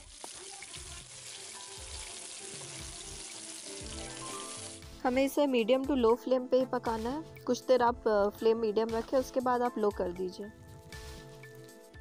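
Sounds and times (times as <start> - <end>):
fish sizzling in oil: 0.0 - 5.4
soft background music: 0.6 - 12.0.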